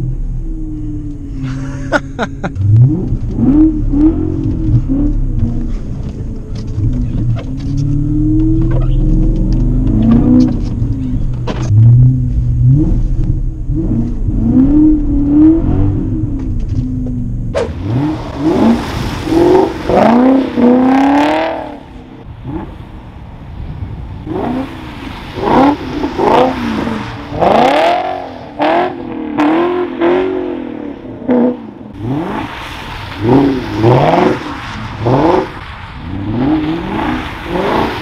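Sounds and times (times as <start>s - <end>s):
car exhaust revving: 0.0s - 23.2s, 23.8s - 38.0s
car engine heard from inside cabin: 2.2s - 17.6s.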